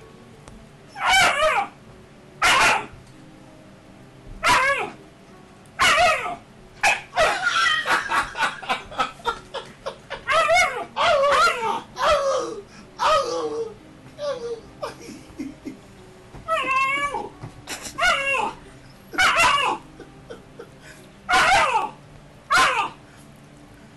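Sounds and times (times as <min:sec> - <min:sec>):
puppy yipping and barking: 0:01.0 - 0:01.8, 0:02.4 - 0:03.0, 0:04.4 - 0:05.0, 0:05.8 - 0:08.5, 0:10.2 - 0:12.2, 0:18.0 - 0:19.8, 0:21.3 - 0:21.9, 0:22.5 - 0:23.0.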